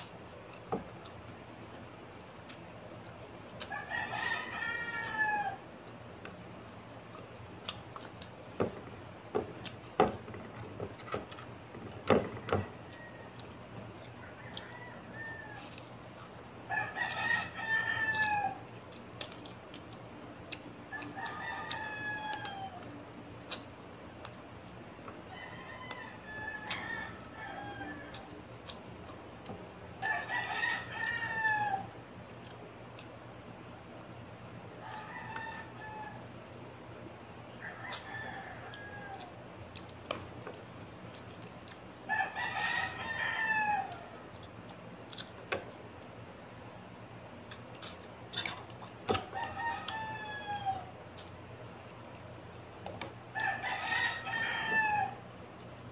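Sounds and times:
rooster crowing: 0:03.6 - 0:05.6, 0:12.0 - 0:15.8, 0:16.7 - 0:18.7, 0:20.9 - 0:23.0, 0:25.3 - 0:28.4, 0:30.0 - 0:32.0, 0:34.8 - 0:36.4, 0:37.6 - 0:39.4, 0:42.0 - 0:44.3, 0:49.1 - 0:51.0, 0:53.3 - 0:55.4.

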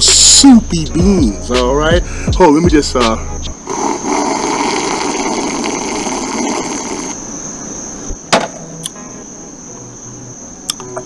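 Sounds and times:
crickets chirping: 0:00.0 - 0:11.0
sharp knock: 0:08.3 - 0:08.7.

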